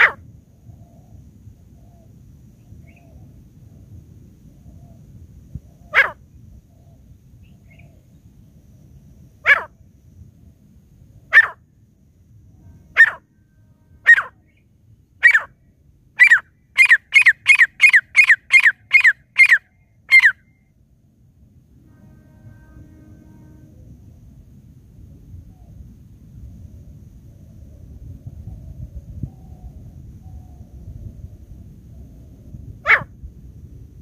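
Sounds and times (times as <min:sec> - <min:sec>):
francolin calling: 0:00.0 - 0:00.2, 0:05.6 - 0:08.2, 0:09.4 - 0:09.8, 0:11.3 - 0:11.6, 0:12.8 - 0:13.4, 0:14.0 - 0:15.6, 0:16.2 - 0:20.7, 0:32.8 - 0:33.1.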